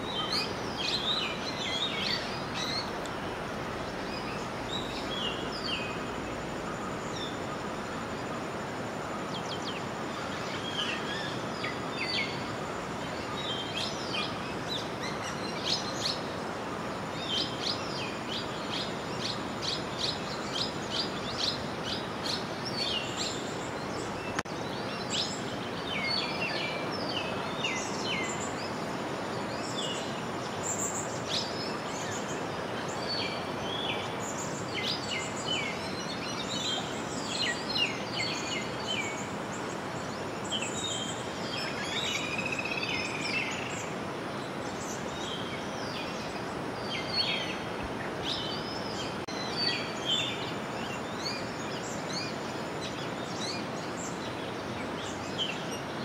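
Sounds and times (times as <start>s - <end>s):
birds chirping and calling: 0.0s - 6.2s
river water flowing: 0.0s - 56.0s.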